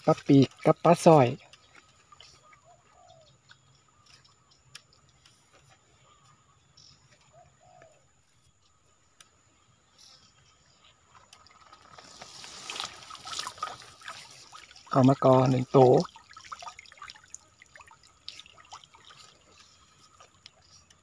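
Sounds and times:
faint bird call: 2.1 - 4.4, 5.8 - 8.8.

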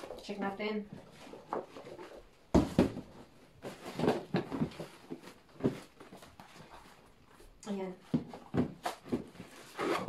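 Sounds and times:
plastic wrap rustling and crinkling: 0.0 - 7.6.

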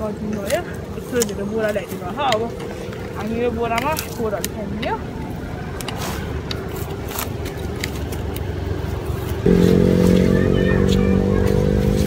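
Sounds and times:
steady engine hum: 0.0 - 12.0
engine low rumble: 4.5 - 12.0.

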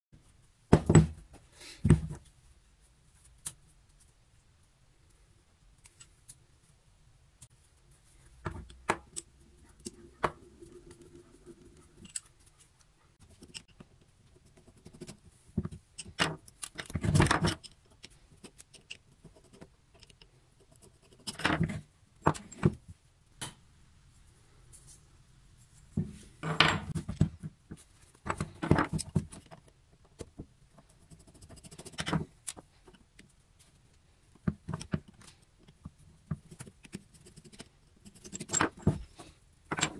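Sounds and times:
metal clicks and scrapes: 8.6 - 22.6, 36.4 - 39.9.

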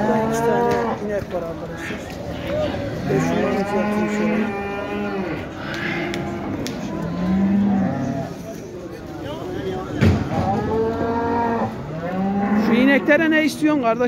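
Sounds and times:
cattle mooing: 0.0 - 1.0, 3.0 - 8.4, 10.4 - 13.8.

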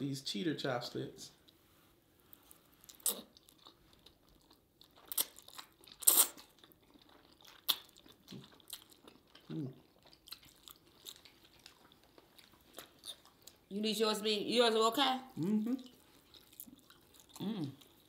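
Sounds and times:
food crunching and chewing: 2.3 - 13.7, 15.6 - 18.0.

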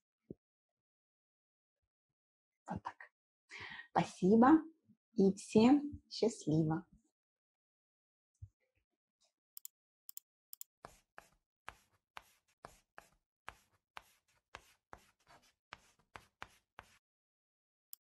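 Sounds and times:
chalk scratching on blackboard: 10.8 - 17.0.

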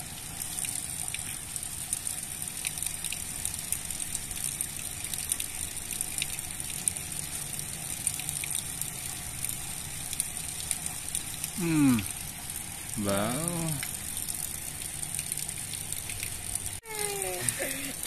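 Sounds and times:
rushing water hiss: 9.4 - 18.0.

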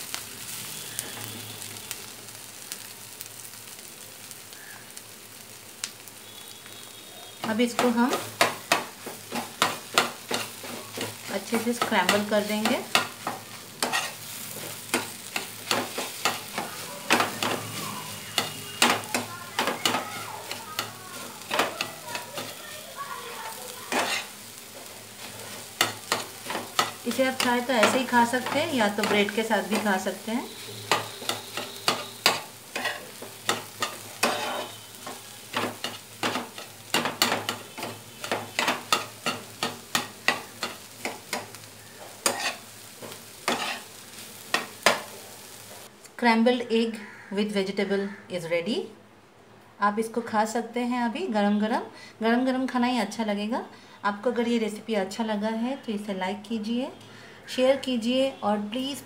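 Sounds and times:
eggs sizzling in a pan: 0.0 - 46.0, 47.0 - 47.4
spatula scraping a frying pan: 7.8 - 45.2.

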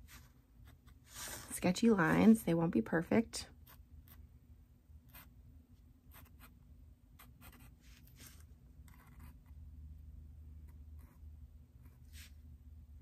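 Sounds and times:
marker sketching on paper: 6.1 - 6.6, 7.2 - 9.4, 10.7 - 12.4.

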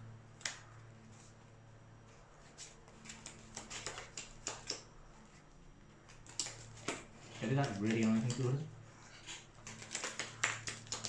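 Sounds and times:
low steady hum: 0.0 - 11.0
cards clicking and tapping: 2.8 - 4.9, 6.0 - 8.6, 9.2 - 11.0.

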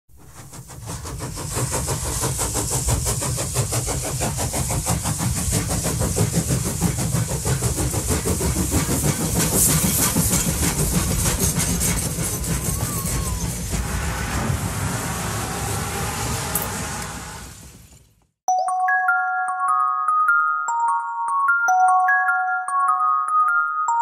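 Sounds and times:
train chugging with hiss: 0.1 - 17.8.

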